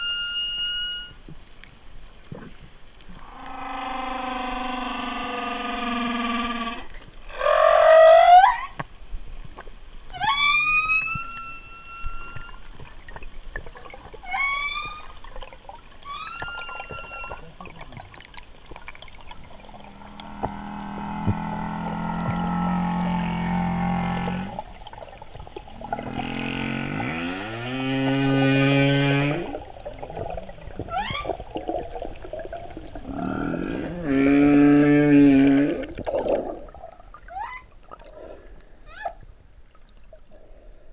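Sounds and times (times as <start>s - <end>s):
humpback whale calls: 0.0s - 1.2s, 3.2s - 8.8s, 10.1s - 12.6s, 14.2s - 15.2s, 16.0s - 17.6s, 19.7s - 24.7s, 25.8s - 31.5s, 33.0s - 36.0s.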